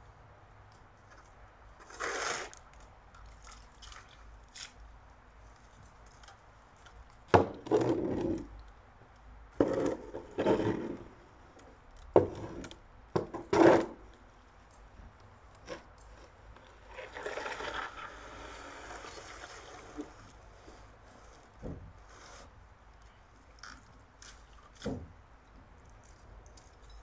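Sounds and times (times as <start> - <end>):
shovel scraping and knocking: 1.8 - 2.6, 9.6 - 11.1, 12.2 - 14.0.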